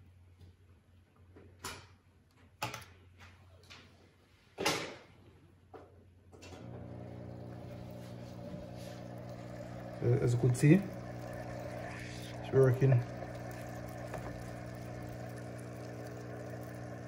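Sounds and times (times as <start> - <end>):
air pump buzzing: 6.6 - 17.0.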